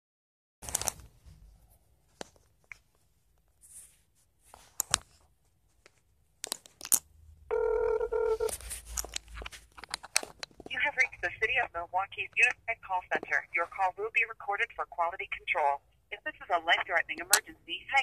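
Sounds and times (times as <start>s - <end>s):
phone ringing tone: 7.5s - 8.6s
phone handling clicks and rustles: 8.4s - 11.2s.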